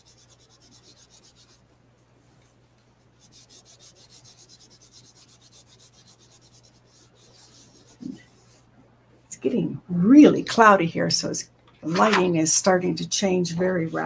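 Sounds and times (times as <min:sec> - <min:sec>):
cloth rubbing on cardstock: 0:00.0 - 0:01.6, 0:03.0 - 0:08.7.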